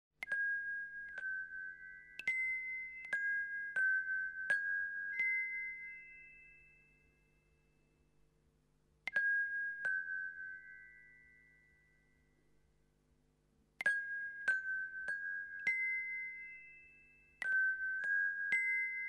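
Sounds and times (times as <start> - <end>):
bell-like struck notes: 0.2 - 7.8.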